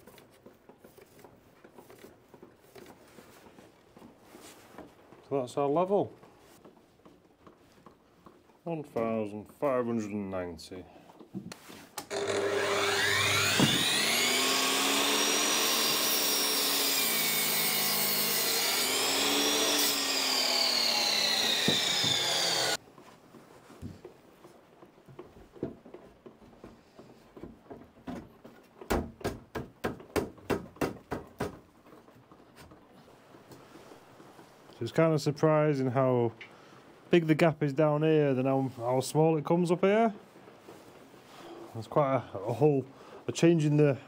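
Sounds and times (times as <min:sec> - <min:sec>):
mitre saw cutting wood: 0:12.0 - 0:22.8
knocks: 0:13.4 - 0:13.9, 0:27.3 - 0:31.7.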